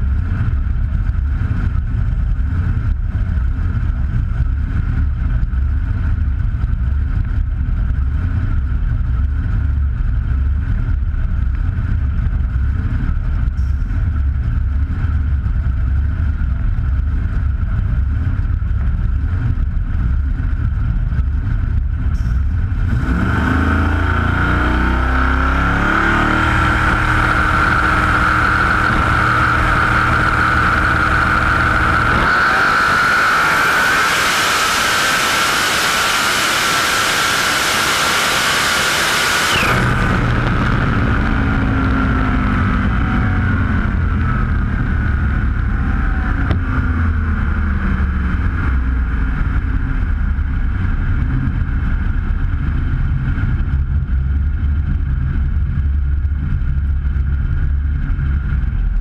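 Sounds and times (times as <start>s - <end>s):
car engine rumbling and revving: 0.0s - 59.0s
high whine: 0.0s - 59.0s
loud rushing noise: 22.3s - 44.1s.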